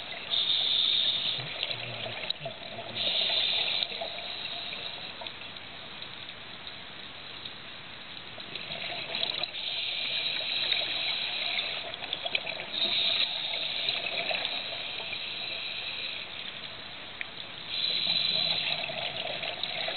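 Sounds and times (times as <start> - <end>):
regulator hiss and bubbling: 0.0 - 19.9
underwater bubbles rushing: 8.4 - 15.2, 17.7 - 19.9.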